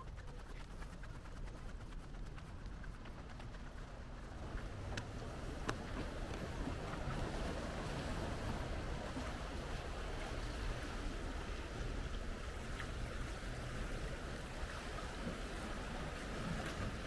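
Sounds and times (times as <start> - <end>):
sea waves washing against concrete: 4.1 - 17.0.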